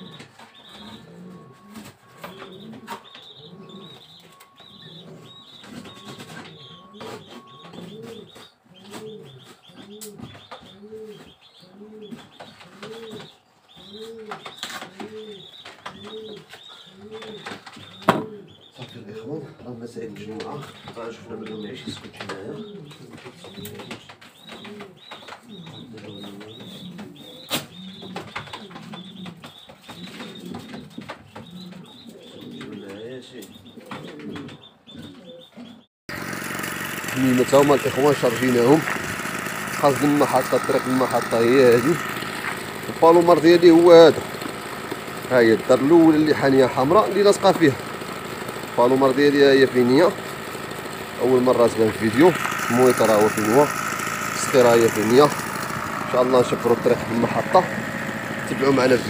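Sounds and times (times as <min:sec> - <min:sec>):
small bird chirping: 0:00.0 - 0:19.0, 0:20.5 - 0:35.9
pigeons cooing: 0:00.0 - 0:59.0.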